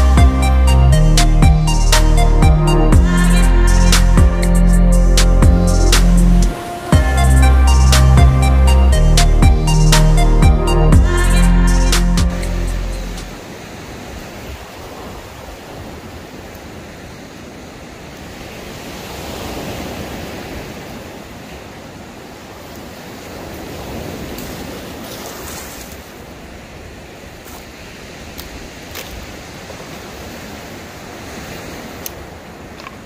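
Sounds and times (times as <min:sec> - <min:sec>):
surf on pebbly beach: 0:06.5 - 0:07.0, 0:13.2 - 0:33.0.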